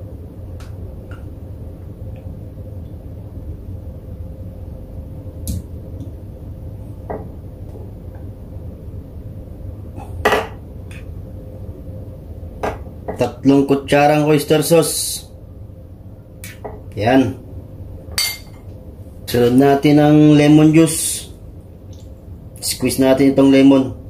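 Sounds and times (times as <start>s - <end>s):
steady low hum: 0.0s - 24.0s
metal spoon clinking on ceramic dish: 18.2s - 18.6s.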